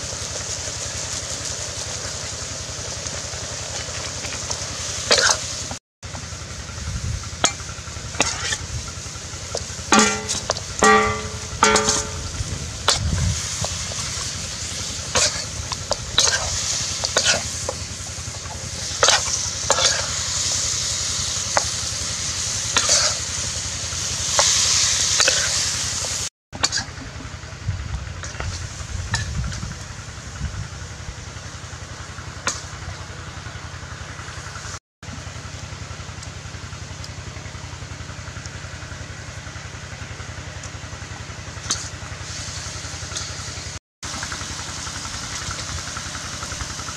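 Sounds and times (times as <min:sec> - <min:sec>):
food sizzling in a wok: 0:00.0 - 0:46.9
metal spatula scraping a pan: 0:08.2 - 0:08.6.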